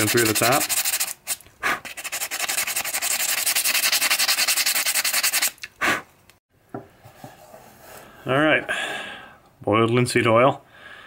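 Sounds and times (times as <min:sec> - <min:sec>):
sandpaper rubbing on wood: 0:00.0 - 0:05.6.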